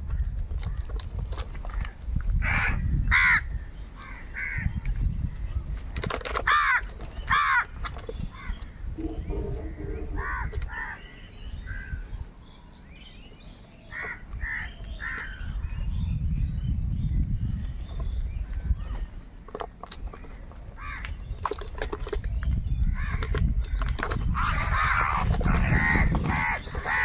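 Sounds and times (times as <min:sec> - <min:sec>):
crows cawing: 0:02.4 - 0:04.7, 0:06.5 - 0:07.8, 0:09.0 - 0:11.0, 0:20.8 - 0:21.1, 0:24.4 - 0:27.0
low rumble: 0:09.0 - 0:10.9.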